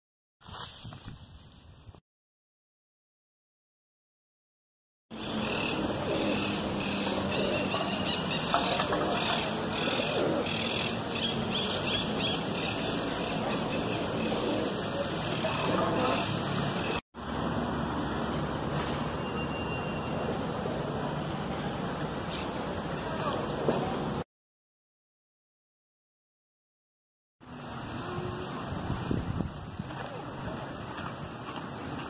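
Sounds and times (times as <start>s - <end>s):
outdoor background noise: 5.1s - 24.2s, 27.4s - 32.0s.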